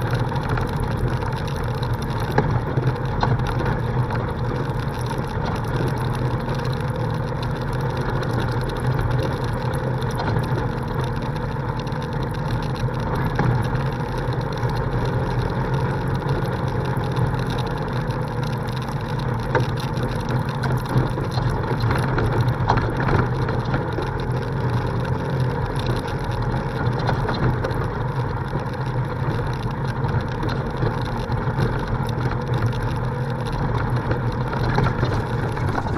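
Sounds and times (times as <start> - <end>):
vehicle engine running: 0.0 - 35.9
knocks and rattles on gravel: 29.2 - 35.9.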